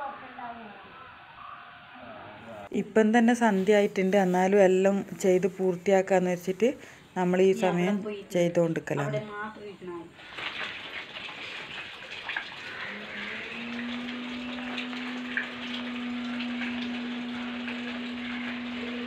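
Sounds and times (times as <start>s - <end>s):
water running: 8.8s - 19.0s.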